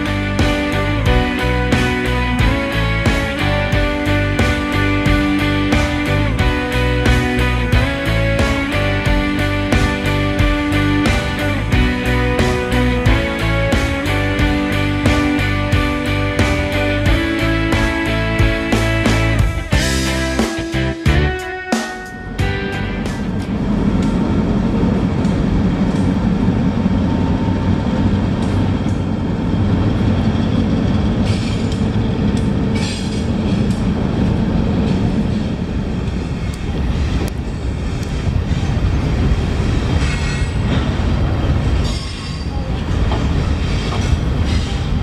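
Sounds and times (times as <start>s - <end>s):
freight cars rolling: 0.0s - 21.4s, 22.1s - 45.0s
diesel locomotive rumble: 0.0s - 45.0s
train wheel squeals: 23.9s - 45.0s.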